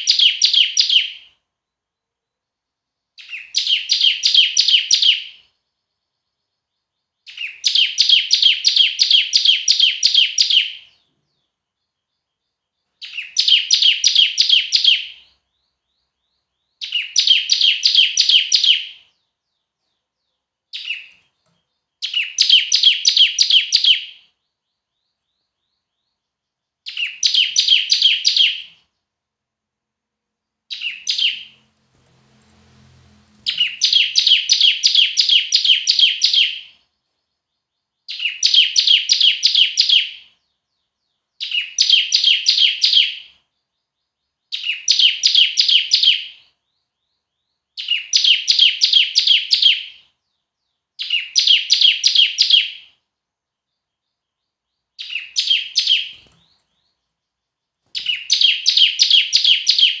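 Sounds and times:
bird singing high sharp notes: 0:03.2 - 0:26.3, 0:26.9 - 0:28.8, 0:30.7 - 0:50.4, 0:51.0 - 0:53.0, 0:53.8 - 0:57.0, 0:57.8 - 1:00.0.

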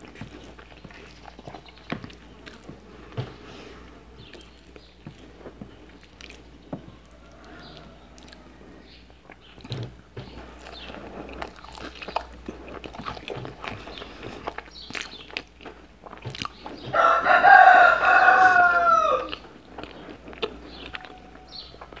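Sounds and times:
soft chewing and mouth clicks: 0:00.0 - 0:22.0
rooster crowing: 0:06.9 - 0:08.6, 0:16.9 - 0:19.4, 0:20.9 - 0:22.0.

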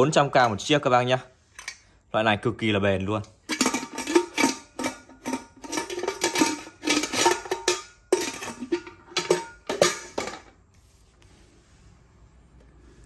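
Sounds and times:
metal pots and lids clanking: 0:03.4 - 0:10.6.

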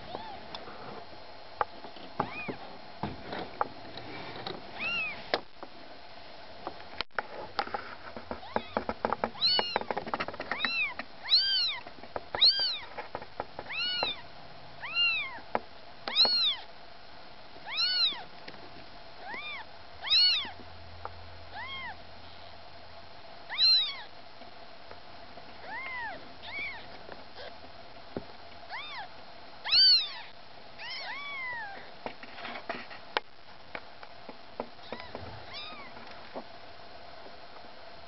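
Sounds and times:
kittens mewing: 0:13.7 - 0:14.2, 0:19.2 - 0:20.6, 0:21.5 - 0:22.0, 0:25.6 - 0:27.6.

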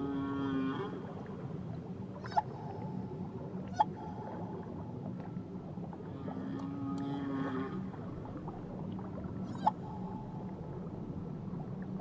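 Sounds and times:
whale calls underwater: 0:00.0 - 0:04.7, 0:06.0 - 0:08.5, 0:09.4 - 0:10.5
underwater water noise: 0:00.0 - 0:12.0.

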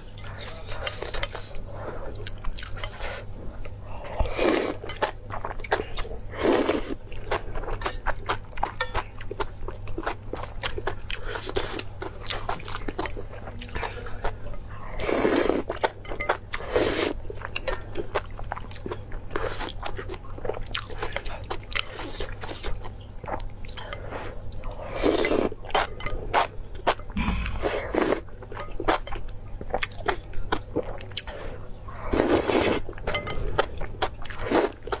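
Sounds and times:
noodles being slurped: 0:31.9 - 0:32.9.

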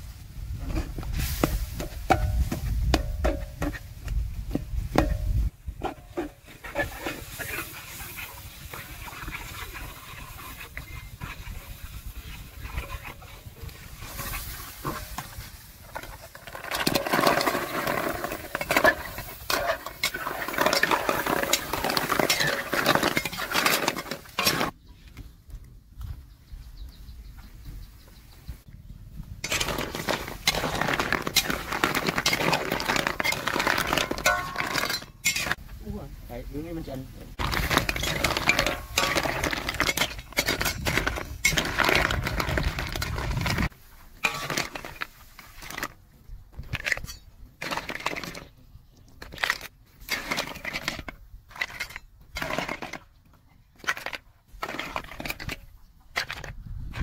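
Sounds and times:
metal spatula scraping wok: 0:05.0 - 0:24.8, 0:29.4 - 0:35.8, 0:37.4 - 0:45.9
snail shells clattering: 0:15.9 - 0:24.7, 0:29.4 - 0:35.6, 0:37.4 - 0:43.7.

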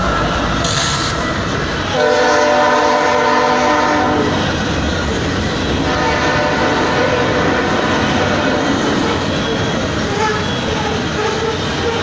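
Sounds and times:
freight cars rumbling past: 0:00.0 - 0:12.0
locomotive horn: 0:01.8 - 0:04.6, 0:05.7 - 0:12.0.

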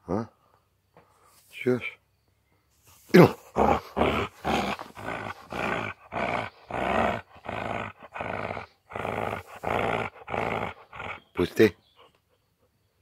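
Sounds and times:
dog growling: 0:03.1 - 0:11.6.

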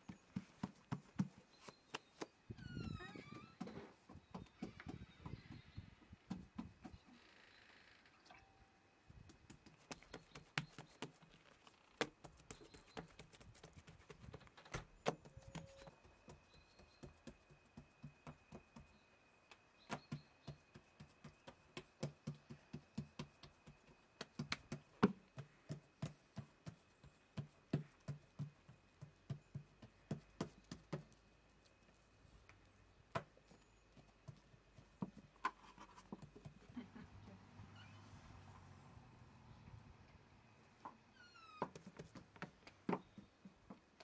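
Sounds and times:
soft pats on dough: 0:09.2 - 0:11.4, 0:12.0 - 0:36.9.

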